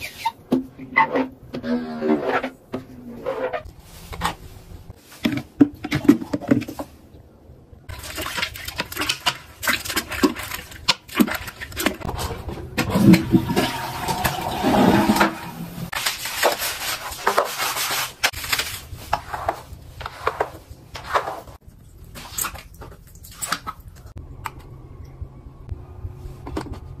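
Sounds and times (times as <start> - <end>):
scrubbing: 7.9 - 24.1.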